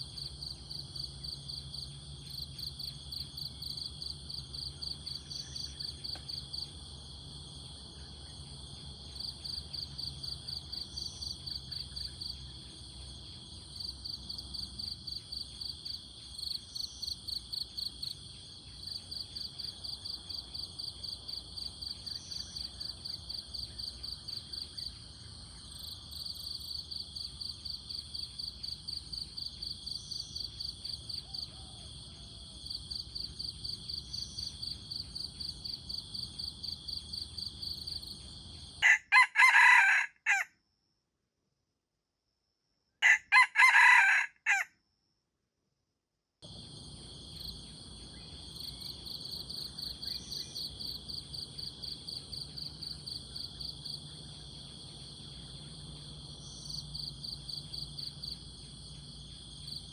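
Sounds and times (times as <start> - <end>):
insects pulsing chorus: 0.0 - 40.4, 46.4 - 59.9
rooster crowing: 38.8 - 40.5, 43.0 - 44.7.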